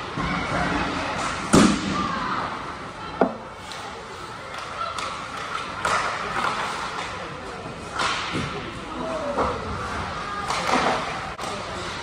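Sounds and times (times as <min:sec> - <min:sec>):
faint voices: 0:00.0 - 0:12.0
skates scraping ice: 0:03.6 - 0:12.0
hockey stick hitting puck: 0:04.5 - 0:07.2, 0:07.9 - 0:08.5, 0:10.4 - 0:11.6.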